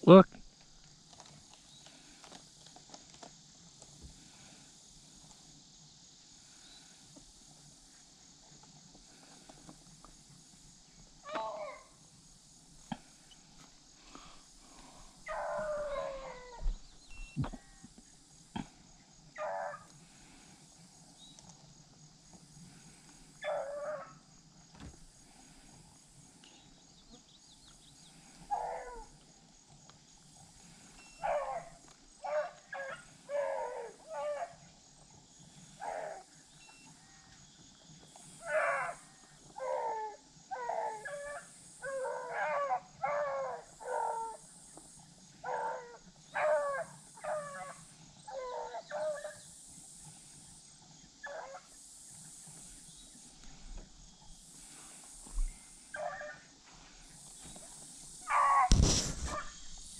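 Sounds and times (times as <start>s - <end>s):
dogs baying and barking: 11.2s - 12.0s, 13.1s - 16.8s, 19.3s - 20.4s, 22.7s - 24.3s, 28.1s - 29.3s, 30.6s - 34.7s, 35.4s - 36.6s, 38.1s - 49.6s, 51.1s - 51.8s, 52.4s - 59.9s.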